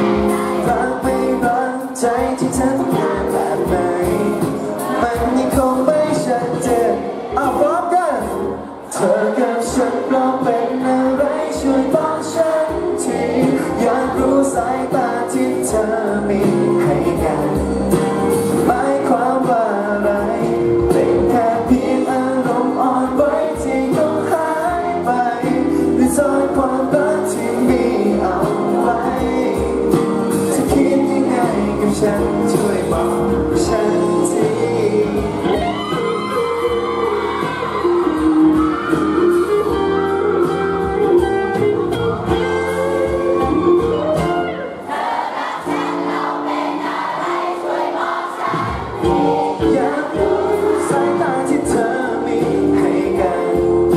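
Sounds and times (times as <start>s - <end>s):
man singing into a microphone: 0.0s - 37.2s, 49.0s - 53.9s
backing music with steady beat: 0.0s - 47.6s, 48.3s - 53.9s.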